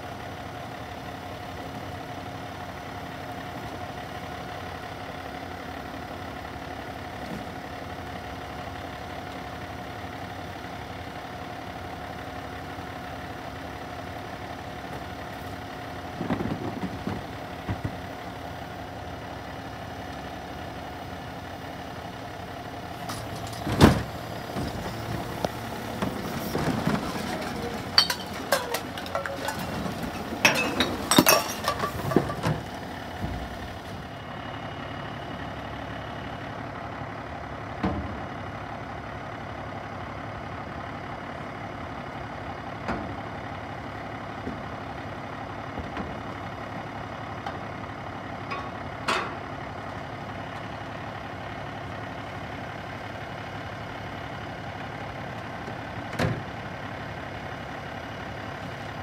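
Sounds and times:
garbage truck diesel engine idling: 0.0s - 59.0s
clattering and banging of trash cart: 16.1s - 18.1s, 23.0s - 33.9s.

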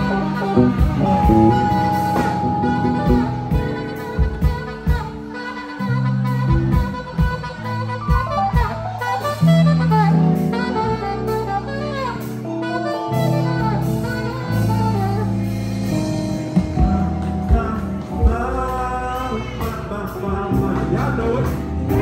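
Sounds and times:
live band with bass and drums: 0.0s - 22.0s
saxophone melody: 0.0s - 22.0s
person singing into microphone: 17.1s - 22.0s.

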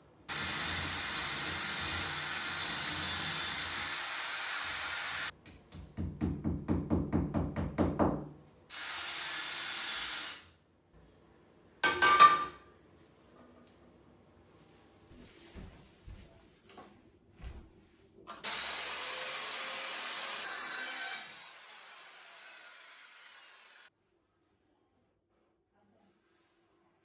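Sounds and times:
cordless drill drilling into brick: 18.4s - 23.9s.

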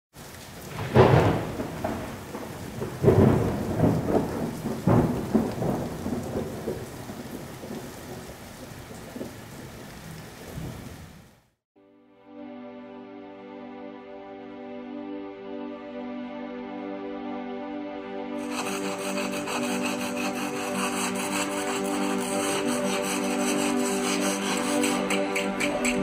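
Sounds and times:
steady rain: 0.1s - 11.6s, 18.4s - 26.0s
thunder rolling: 0.7s - 9.7s.

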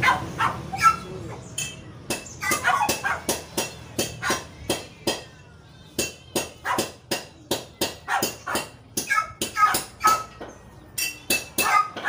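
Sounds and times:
dog barking: 0.0s - 1.1s, 2.4s - 3.3s, 4.2s - 4.4s, 6.6s - 7.0s, 8.0s - 10.3s, 11.6s - 12.0s.

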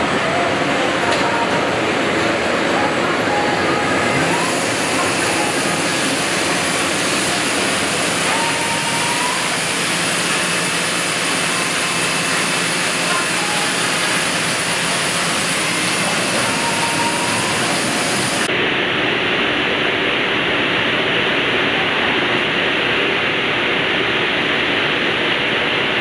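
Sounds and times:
printing press mechanical whir: 0.0s - 18.5s
hiss: 4.3s - 18.5s.

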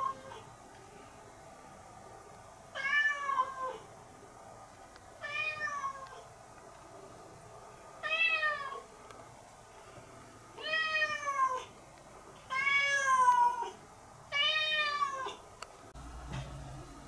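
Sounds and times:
cat meowing: 2.8s - 3.8s, 8.0s - 8.8s, 10.6s - 11.7s, 12.5s - 15.4s.

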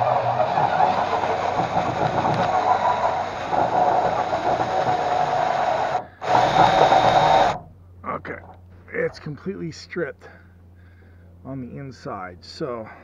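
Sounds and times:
power drill boring into steel: 0.0s - 7.6s.

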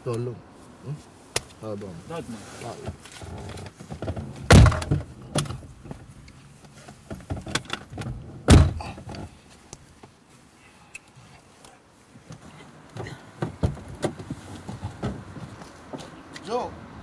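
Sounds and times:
small knocks and rustling: 1.3s - 10.4s, 11.0s - 16.5s
car door slamming: 2.8s - 6.1s, 7.1s - 9.3s, 13.0s - 15.5s.

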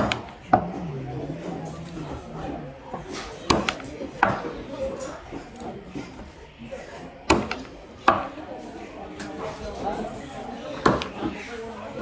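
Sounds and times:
knife chopping fish: 3.5s - 4.4s, 7.3s - 8.3s.

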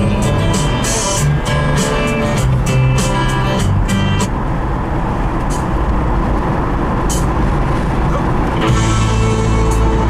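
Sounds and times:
music from car stereo: 0.0s - 4.6s, 5.2s - 10.0s
car road and engine noise: 0.0s - 10.0s.

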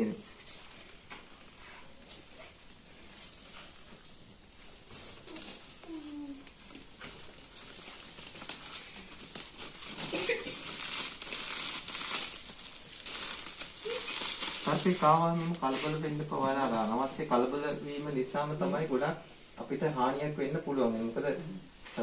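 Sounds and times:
plastic sack crinkling: 3.0s - 17.6s.

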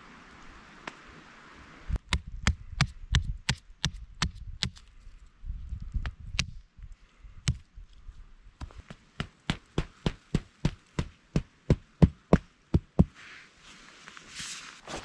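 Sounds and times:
axe chopping wooden stake: 2.1s - 4.8s, 8.7s - 13.1s.

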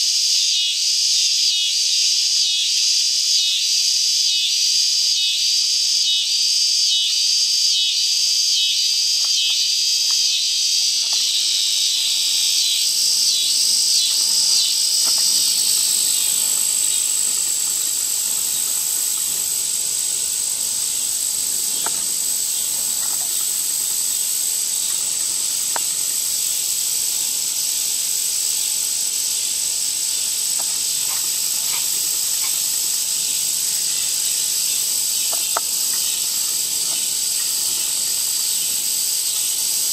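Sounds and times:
faint insect chirps: 0.0s - 39.9s
high-pitched insect trilling: 0.0s - 39.9s
pulsing insect chorus: 0.0s - 39.9s.

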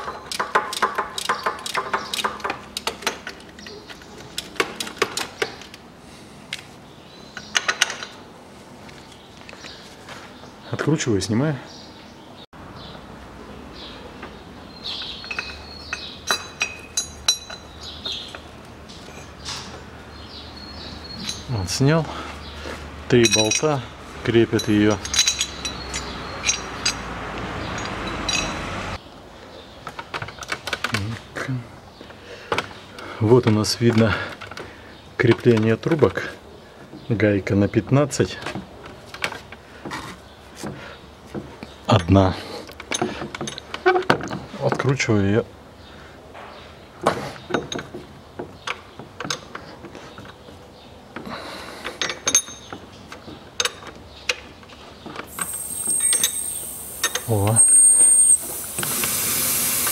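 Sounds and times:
metal tools clinking: 14.9s - 19.7s, 21.1s - 21.6s, 23.2s - 28.8s, 52.0s - 52.9s, 55.2s - 58.9s
steady hiss: 55.3s - 59.9s
ratchet wrench clicking: 55.4s - 59.9s.

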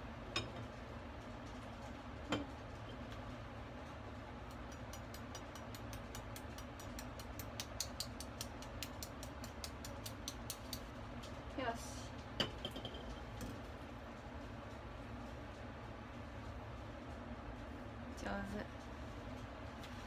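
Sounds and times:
knife tapping eggshell: 4.4s - 10.9s.

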